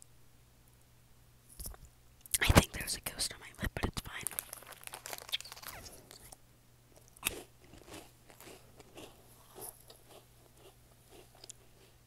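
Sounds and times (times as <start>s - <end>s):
person chewing crunchy snack: 4.2s - 12.0s.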